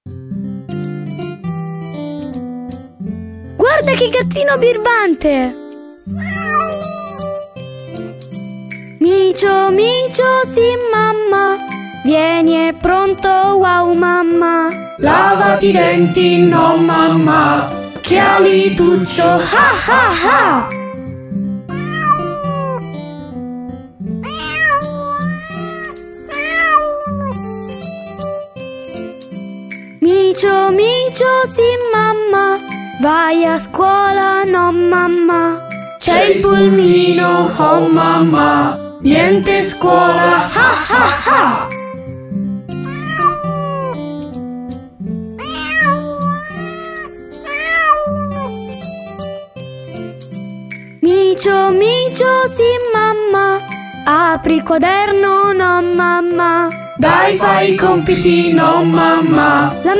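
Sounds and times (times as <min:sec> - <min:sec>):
children's song backing track: 0:03.5 - 0:08.2, 0:08.9 - 0:21.1, 0:29.9 - 0:42.1, 0:50.9 - 0:59.9
cartoon kitten meowing: 0:06.1 - 0:07.3, 0:21.7 - 0:22.9, 0:24.2 - 0:27.4, 0:42.9 - 0:44.0, 0:45.4 - 0:48.6.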